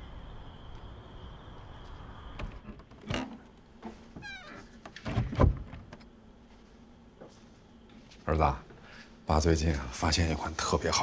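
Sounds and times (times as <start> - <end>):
wooden door opening with thump: 2.4 - 6.0.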